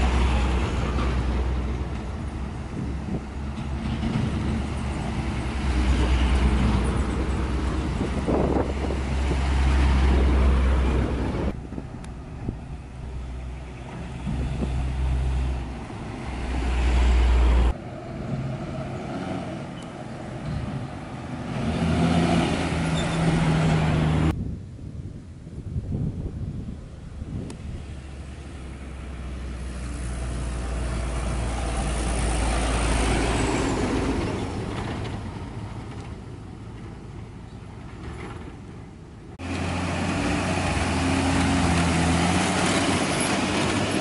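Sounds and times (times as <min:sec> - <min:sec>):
truck diesel engines rumbling: 0:00.0 - 0:24.4, 0:26.6 - 0:44.0.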